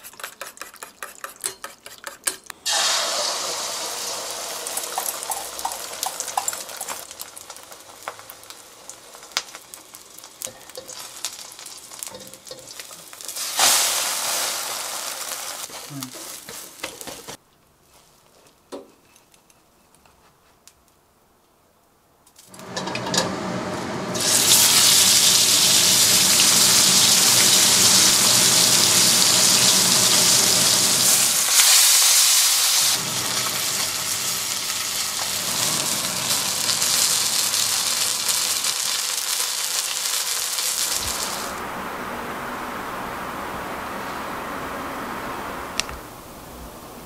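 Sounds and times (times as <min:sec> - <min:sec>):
fish sizzling in hot oil: 0:02.6 - 0:16.9, 0:24.0 - 0:41.6.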